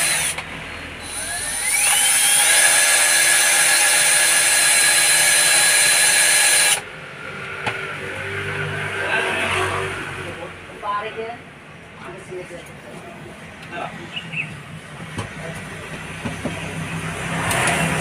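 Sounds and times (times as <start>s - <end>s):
cordless drill driving screw: 0.0s - 0.4s, 1.0s - 6.8s.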